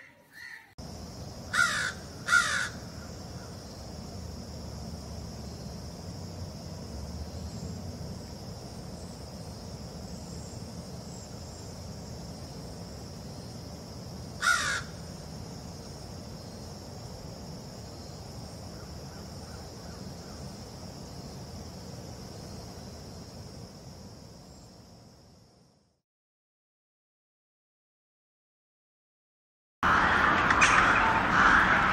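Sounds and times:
crow cawing: 0.0s - 0.7s, 1.5s - 3.6s, 14.4s - 15.0s
high-pitched drone: 29.8s - 31.9s.

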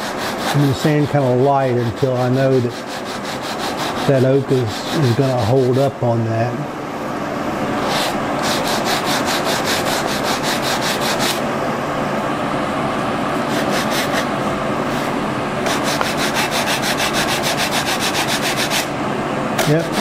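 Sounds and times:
sandpaper rasping on wood: 0.0s - 5.7s, 7.8s - 11.4s, 13.4s - 14.3s, 14.9s - 18.9s, 19.6s - 20.0s.

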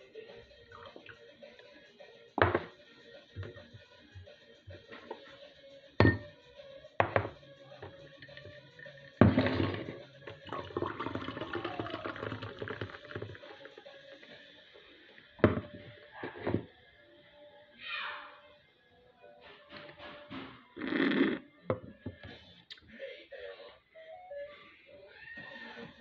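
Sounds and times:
background music: 0.0s - 26.0s
can knocking on surface: 7.0s - 7.4s
soda pouring and fizzing: 9.2s - 14.7s.

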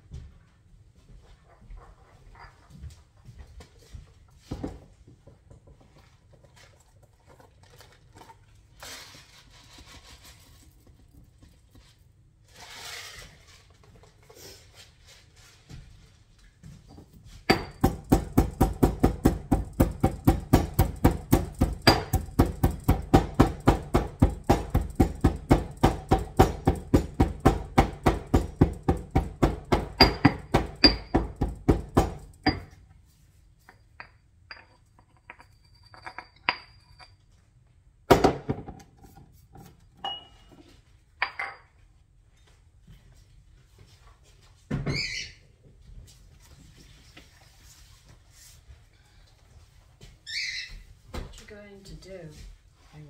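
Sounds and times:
stone pestle pounding in mortar: 17.5s - 32.7s
stone clinking on stone: 33.6s - 37.3s, 40.0s - 40.5s.

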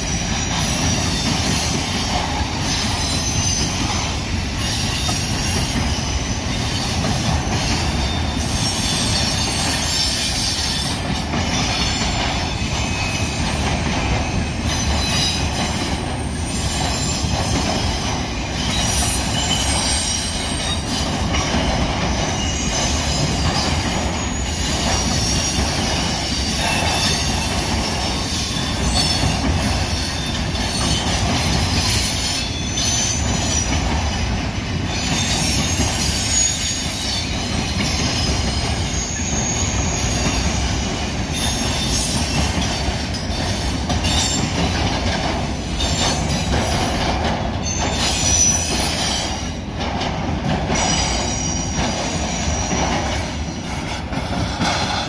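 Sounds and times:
freight train wheels on rail: 0.0s - 55.0s
wheels clacking over rail joints: 0.0s - 55.0s
high-pitched wheel squeal: 34.9s - 40.7s, 47.6s - 49.5s.

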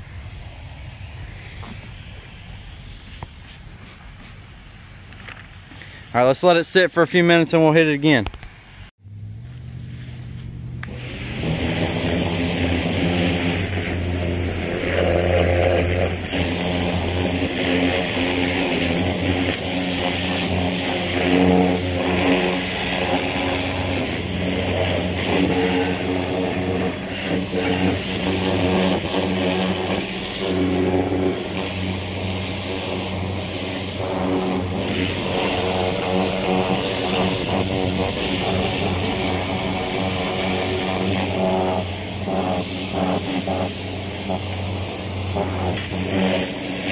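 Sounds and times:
pressure washer motor whining: 9.0s - 46.9s
water spray hitting metal: 10.8s - 46.9s.

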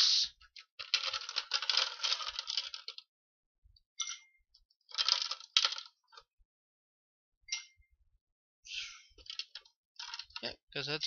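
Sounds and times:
ice cubes clattering into shaker: 0.8s - 3.0s, 4.9s - 5.9s.

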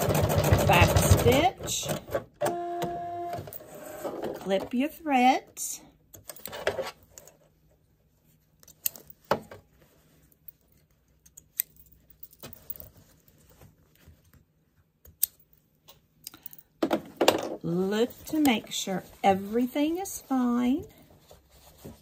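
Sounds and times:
fabric rustling: 17.9s - 22.0s.

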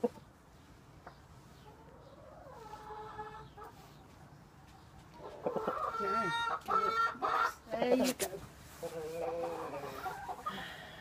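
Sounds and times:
chicken clucking: 0.0s - 10.6s
chicken calling: 1.0s - 4.1s, 5.1s - 8.0s, 8.7s - 10.8s.

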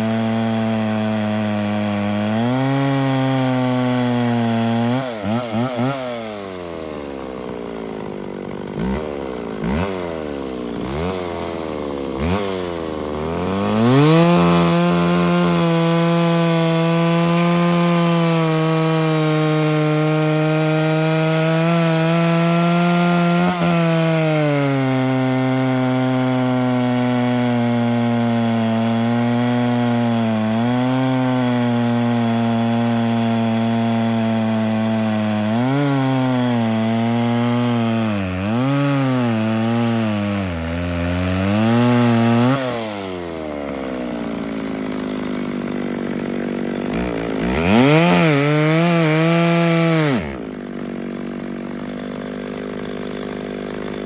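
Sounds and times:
chainsaw cutting log: 0.0s - 54.0s
chainsaw idling: 0.0s - 54.0s.

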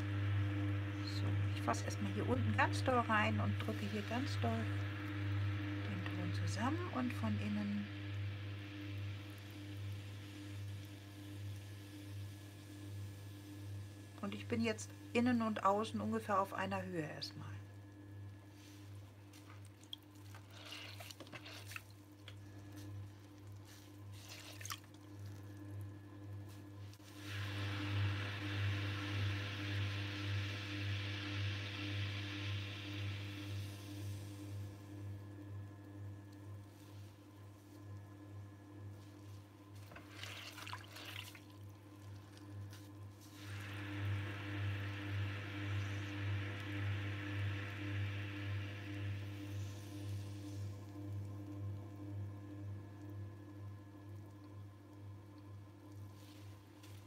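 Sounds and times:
potter's wheel humming: 0.0s - 57.0s
wet clay squelching: 18.7s - 25.6s
hiss: 27.0s - 34.8s, 43.2s - 50.7s.

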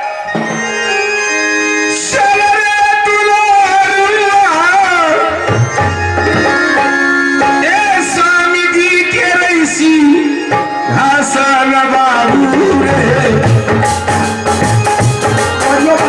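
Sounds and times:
sustained melodic tones: 0.0s - 16.0s.

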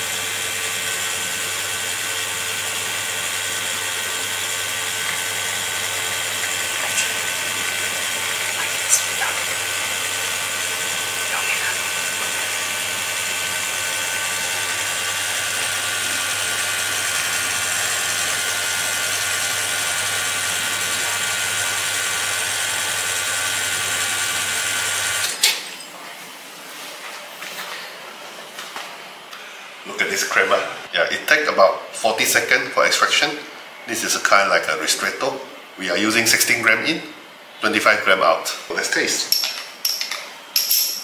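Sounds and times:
espresso machine pump running: 0.0s - 25.4s.

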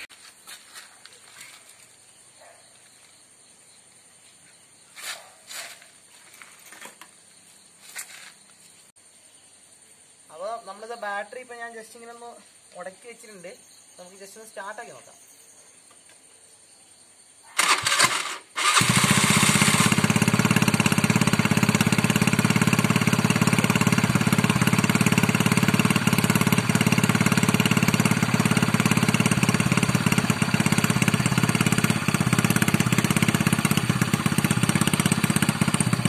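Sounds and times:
small engine cranking and idling: 17.6s - 36.0s.

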